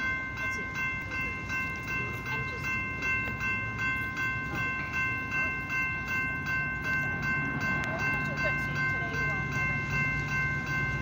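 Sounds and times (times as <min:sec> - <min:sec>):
railroad crossing bell ringing: 0:00.0 - 0:11.0.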